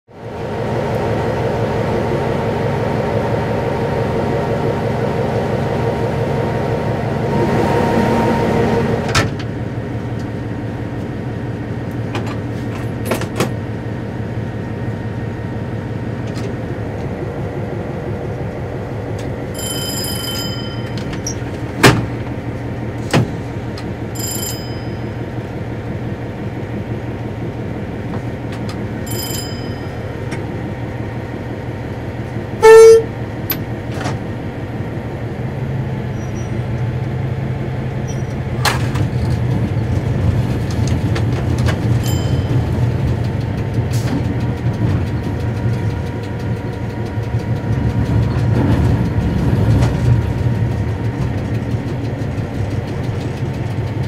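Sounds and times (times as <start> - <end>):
diesel locomotive engine droning: 0.1 - 54.0.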